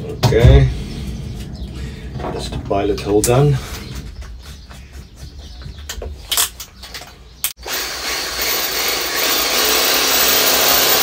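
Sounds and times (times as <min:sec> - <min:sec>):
drill boring through rubber: 0:07.6 - 0:11.0.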